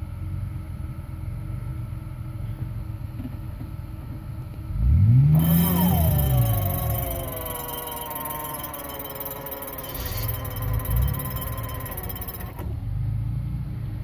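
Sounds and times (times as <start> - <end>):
car engine idling and revving: 0.0 - 14.0
steady high whine: 5.4 - 12.8.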